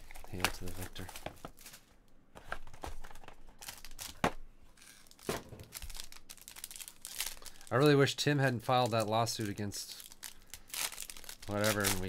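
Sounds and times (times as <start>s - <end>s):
wrapper tearing and crinkling: 0.0s - 1.9s, 3.6s - 4.2s, 4.8s - 8.0s, 8.7s - 12.0s.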